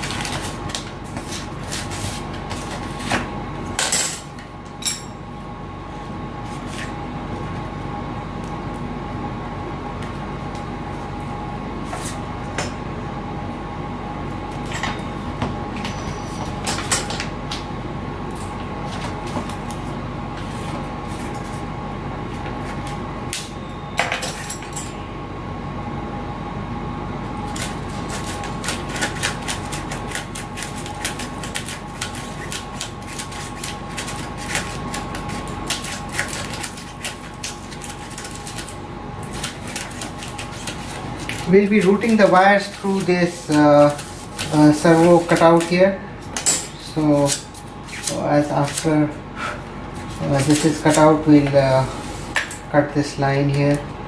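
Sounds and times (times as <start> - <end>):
steady background hum: 0.0 - 54.0
faint high whine: 23.3 - 25.4.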